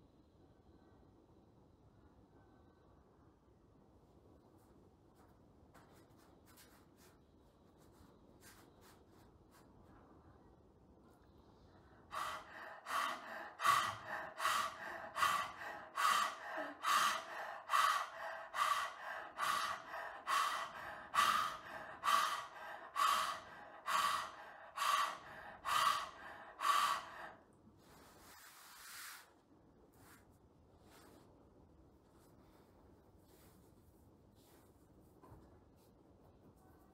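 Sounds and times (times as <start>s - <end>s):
rapid panting breaths: 11.7s - 27.5s.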